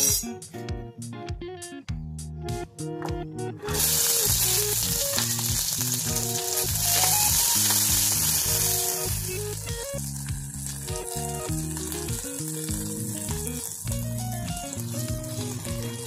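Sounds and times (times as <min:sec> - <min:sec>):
instrumental background music: 0:00.0 - 0:16.0
food sizzling in hot oil: 0:03.7 - 0:16.0
oil crackles: 0:03.7 - 0:16.0.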